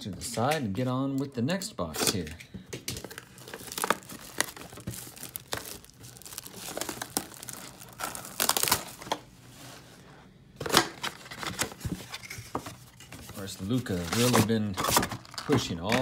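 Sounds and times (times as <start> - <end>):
cardboard box tearing and rustling: 3.1 - 9.1, 11.0 - 15.2.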